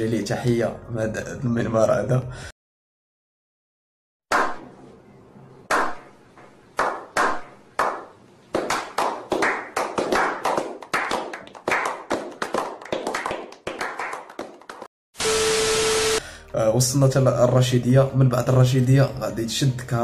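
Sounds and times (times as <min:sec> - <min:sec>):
group slow clapping: 0:06.8 - 0:14.9.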